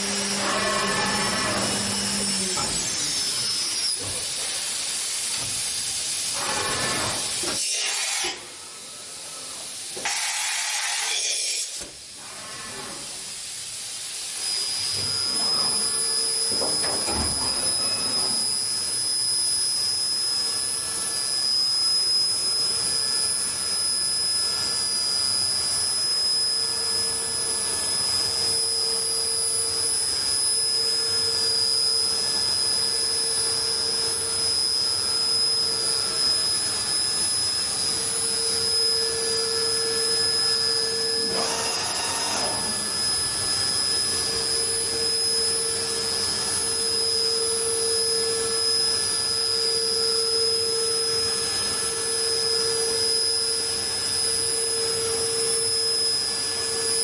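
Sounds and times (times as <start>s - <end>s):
high-pitched machine whine: 0.0s - 57.0s
machine hiss: 1.8s - 20.2s.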